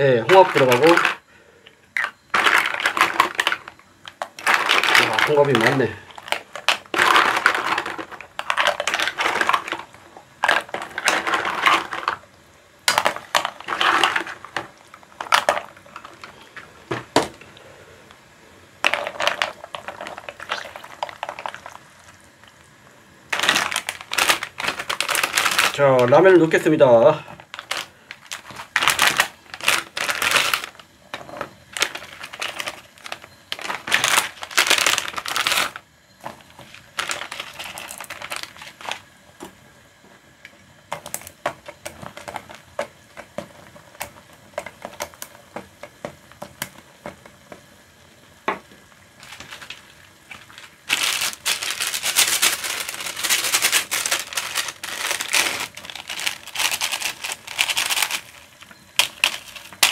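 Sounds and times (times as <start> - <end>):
plastic packets crinkling: 0.0 - 1.3, 2.0 - 17.5, 18.8 - 22.6, 23.3 - 39.1, 40.9 - 46.8, 49.1 - 59.9.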